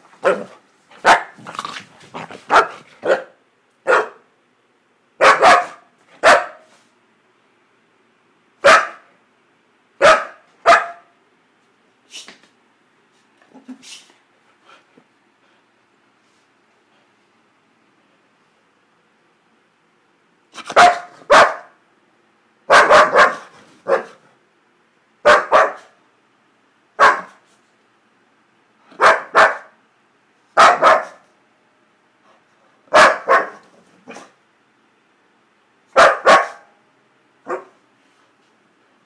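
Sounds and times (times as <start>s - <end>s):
dog barking playfully: 0.1s - 4.3s, 5.2s - 6.7s, 8.6s - 9.1s, 10.0s - 11.2s, 20.5s - 21.8s, 22.7s - 24.3s, 25.2s - 26.0s, 27.0s - 27.4s, 28.9s - 29.8s, 30.6s - 31.3s, 32.9s - 34.4s, 35.9s - 36.7s, 37.4s - 37.8s.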